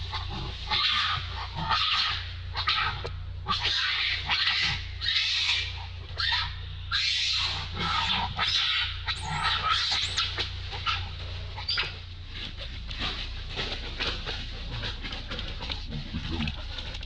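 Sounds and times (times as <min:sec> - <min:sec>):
young monkeys screaming: 0:00.0 - 0:12.1
steady low hum: 0:00.0 - 0:17.0.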